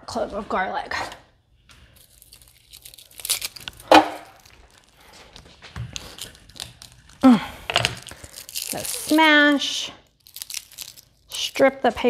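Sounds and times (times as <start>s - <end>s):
garlic skin crinkling and tearing: 1.8s - 11.7s.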